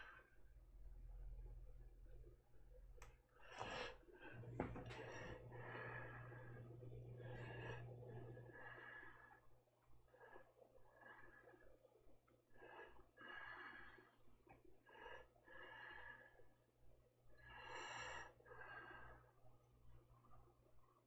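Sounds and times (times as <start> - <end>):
low steady hum: 0.0 - 16.5
soft breathing: 3.0 - 16.7, 17.3 - 20.5.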